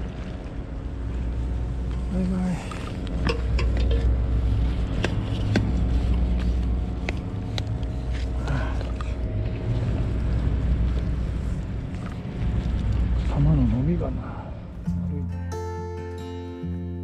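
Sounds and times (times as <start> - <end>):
low steady rumble: 0.0 - 16.0
fishing gear clicks and knocks: 2.7 - 4.2, 4.9 - 9.2.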